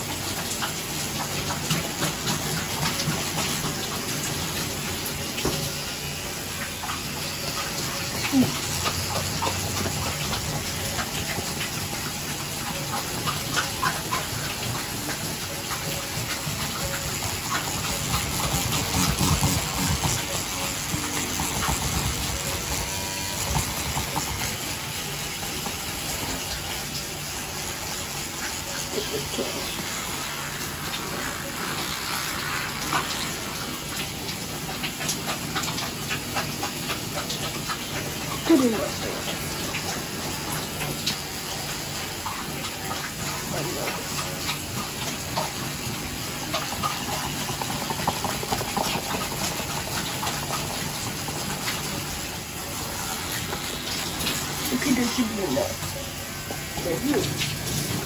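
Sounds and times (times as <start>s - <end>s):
tap running into sink: 0.0s - 55.9s
toothbrush scrubbing: 5.5s - 26.6s, 28.3s - 40.2s, 46.4s - 58.0s.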